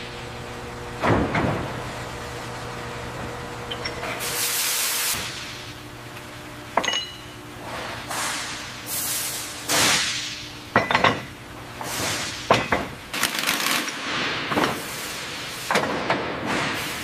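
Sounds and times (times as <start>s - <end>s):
steady low hum: 0.0s - 13.3s.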